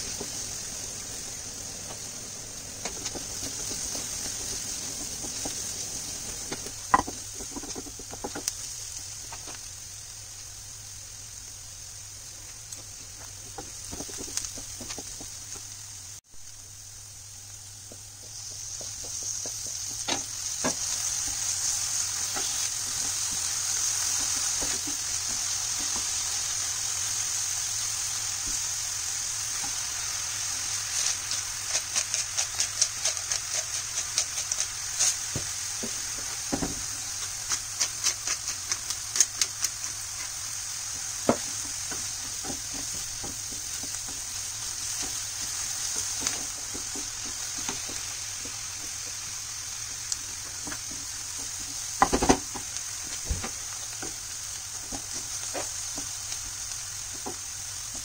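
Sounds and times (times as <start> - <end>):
vegetables sizzling in a frying pan: 0.0 - 58.0.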